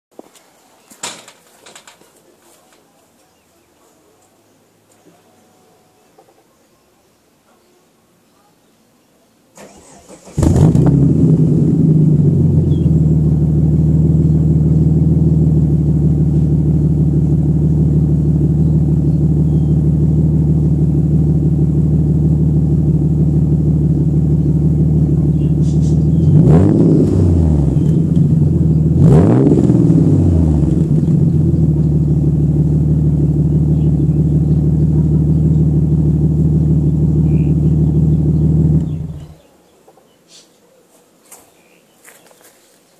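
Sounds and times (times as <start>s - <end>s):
car engine revving: 9.6s - 39.4s
car engine starting and idling: 9.6s - 39.4s.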